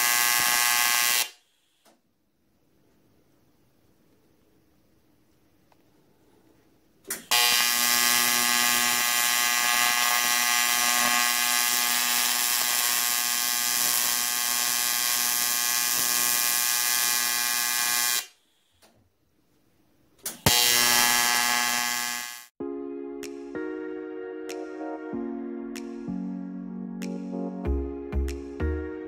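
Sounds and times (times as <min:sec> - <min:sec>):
welding arc buzzing: 0:00.0 - 0:01.4, 0:07.2 - 0:18.4, 0:20.3 - 0:22.5
welding arc striking crack: 0:00.0 - 0:01.4, 0:07.1 - 0:18.4, 0:20.3 - 0:22.5.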